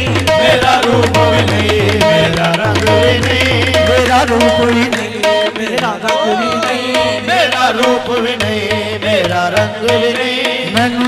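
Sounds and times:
harmonium notes: 0:00.0 - 0:11.0
tabla strokes: 0:00.0 - 0:11.0.

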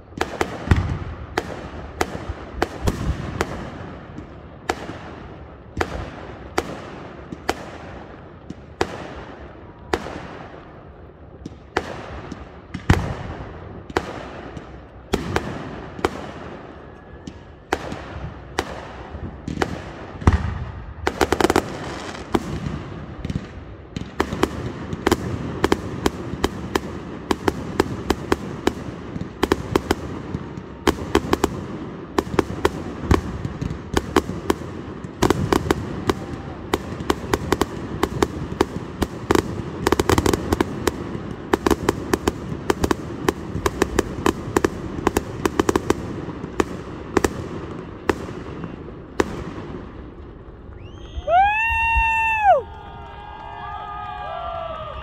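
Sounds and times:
fireworks bursting: 0:00.0 - 0:52.6.

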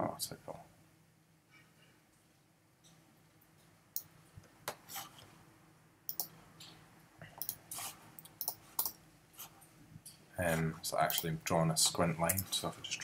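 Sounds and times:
computer mouse clicking: 0:06.1 - 0:06.4, 0:07.4 - 0:09.0, 0:11.1 - 0:11.3.

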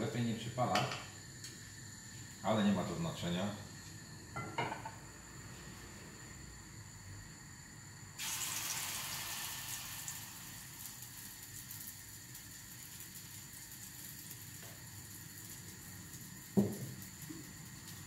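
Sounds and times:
pancakes sizzling in oil: 0:08.2 - 0:18.0.

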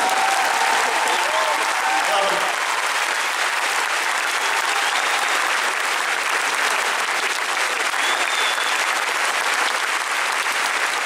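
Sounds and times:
large crowd applauding: 0:00.0 - 0:11.0.

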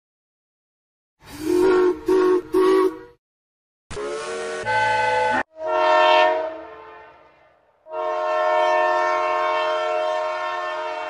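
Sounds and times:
steam whistle: 0:01.2 - 0:03.2, 0:03.9 - 0:07.2, 0:07.9 - 0:11.0
locomotive horn blasts: 0:01.4 - 0:03.2, 0:03.9 - 0:11.0.

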